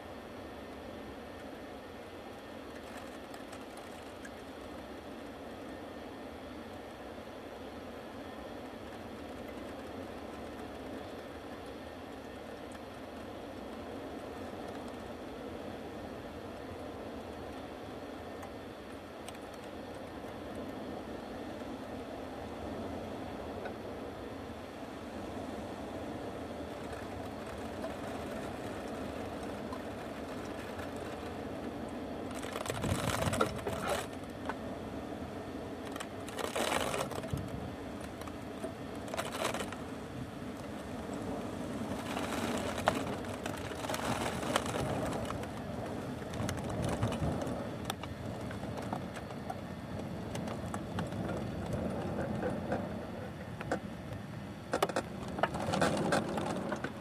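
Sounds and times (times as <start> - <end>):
fire crackling and popping: 26.2 - 34.7, 35.4 - 52.8
flames rushing: 35.6 - 53.0.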